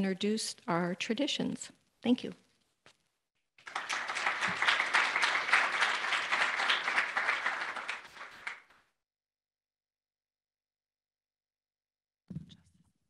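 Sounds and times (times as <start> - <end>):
audience applauding: 3.6 - 8.8.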